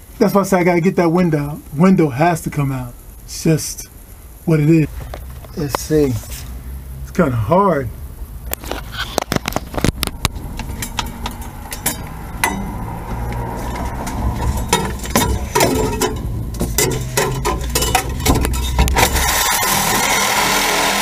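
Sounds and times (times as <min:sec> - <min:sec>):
low rumble: 0:09.6 - 0:19.4.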